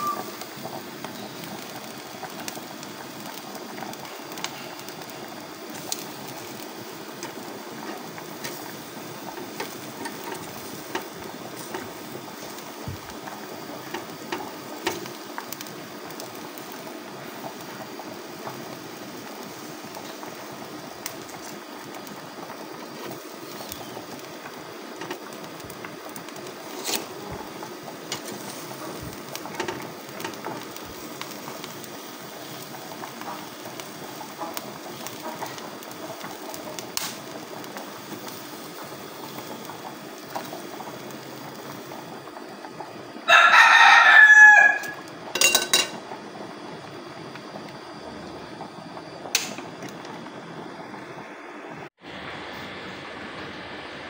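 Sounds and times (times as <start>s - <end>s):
gas stove burner hissing: 0.0s - 54.0s
rooster crowing: 43.2s - 45.1s.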